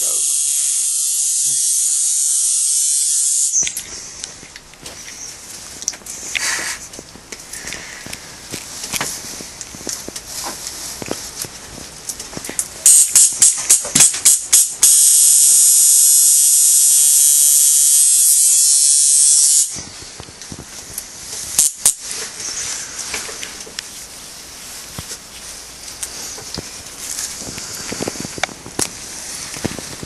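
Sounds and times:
tattoo machine buzzing: 0:00.0 - 0:03.8, 0:12.8 - 0:19.8, 0:21.6 - 0:22.0.

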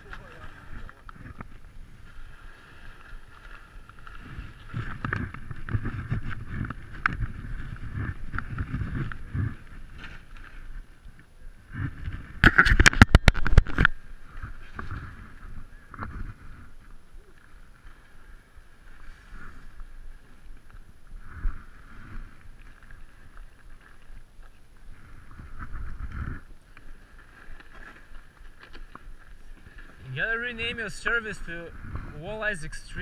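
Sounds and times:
sled scraping in snow: 0:00.0 - 0:10.9, 0:11.6 - 0:16.9.

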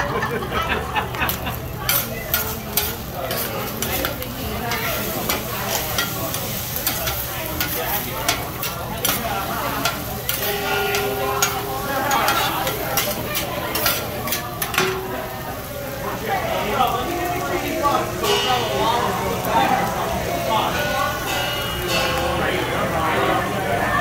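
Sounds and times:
food sizzling on hot plate: 0:00.6 - 0:24.0
metal spatula scraping on griddle: 0:01.2 - 0:15.2.

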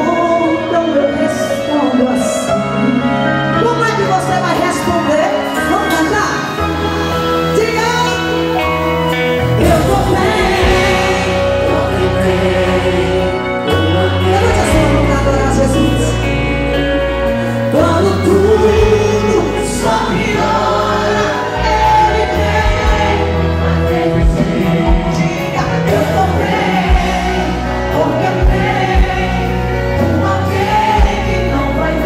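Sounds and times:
amplified band: 0:00.0 - 0:32.0
long held bass notes: 0:08.1 - 0:32.0
woman singing into microphone: 0:09.4 - 0:32.0.

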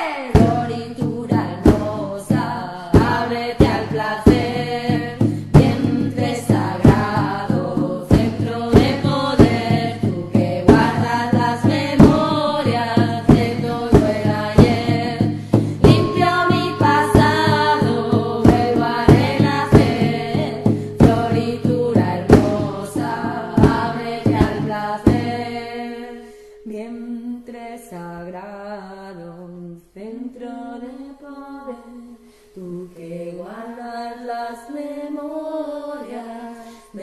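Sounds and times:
drum hits: 0:00.3 - 0:26.0
person singing slow melody: 0:15.0 - 0:25.0.

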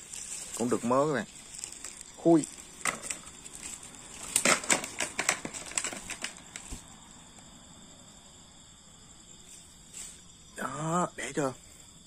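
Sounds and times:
mesh net rustling: 0:00.0 - 0:07.0.

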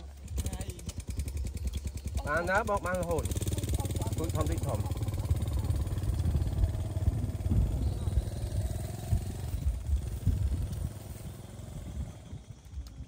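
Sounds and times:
voices talking: 0:00.0 - 0:08.7
small engine rumbling: 0:00.0 - 0:13.0.

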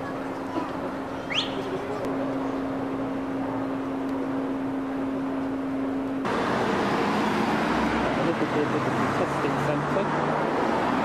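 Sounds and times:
steady low hum: 0:00.1 - 0:06.4.

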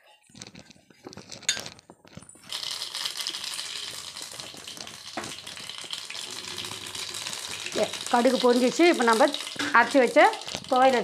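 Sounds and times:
seeds sizzling in hot oil: 0:02.2 - 0:11.0.

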